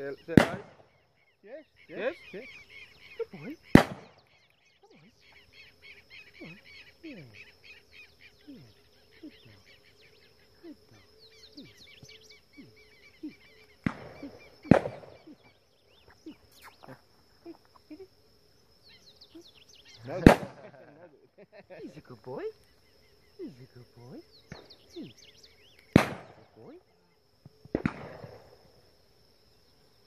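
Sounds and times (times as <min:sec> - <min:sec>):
bird chirps: 0:00.0 - 0:21.1, 0:21.9 - 0:27.2
short falling bird calls: 0:00.0 - 0:21.1, 0:21.8 - 0:27.2
high insect drone: 0:00.0 - 0:30.0
shotgun shots: 0:00.3 - 0:00.8, 0:03.7 - 0:04.2, 0:13.8 - 0:15.2, 0:20.2 - 0:20.7, 0:25.9 - 0:26.4, 0:27.7 - 0:28.6.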